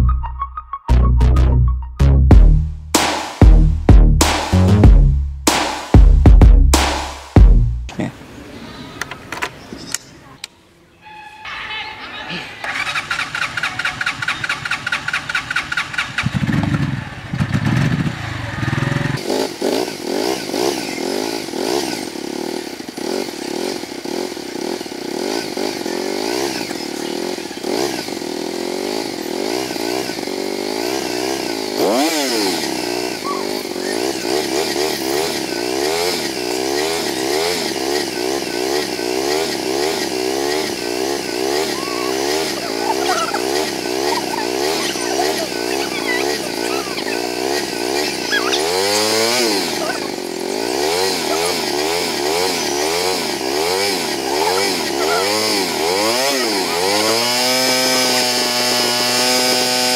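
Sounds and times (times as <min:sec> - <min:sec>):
motorcycle engine idling: 0:12.1 - 0:58.2.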